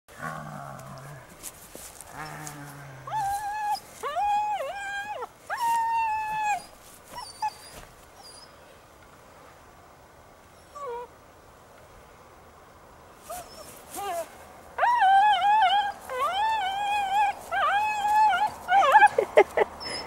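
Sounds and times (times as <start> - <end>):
puppy whining: 2.1 - 8.5, 10.6 - 11.1, 13.3 - 20.0
puppy yipping: 13.3 - 19.2.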